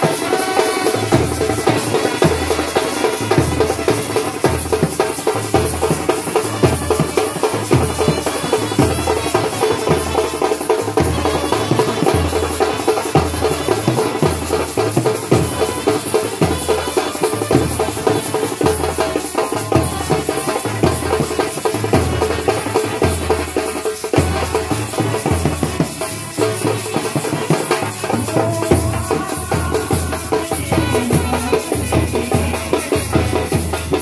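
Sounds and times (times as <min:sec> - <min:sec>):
brass horns playing: 0:00.2 - 0:04.2.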